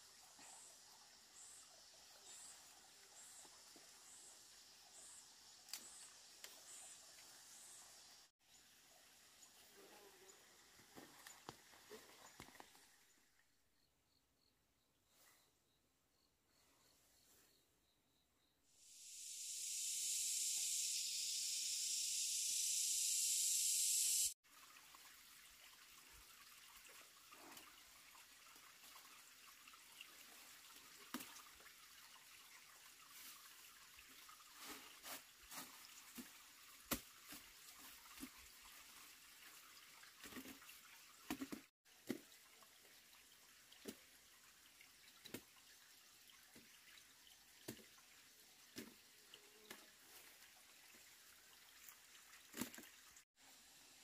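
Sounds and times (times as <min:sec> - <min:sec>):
transition hiss: 0:18.8 - 0:24.4.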